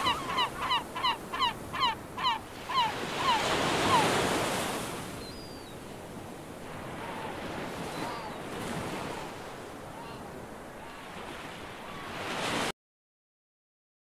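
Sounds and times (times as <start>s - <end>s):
honking bird calls: 0.0s - 4.2s
waves washing in: 0.0s - 12.7s
faint bird chirps: 5.2s - 5.8s, 7.9s - 8.4s.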